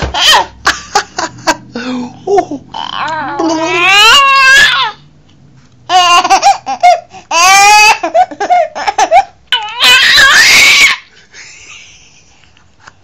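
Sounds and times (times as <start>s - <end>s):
baby laughing: 5.9s - 11.1s.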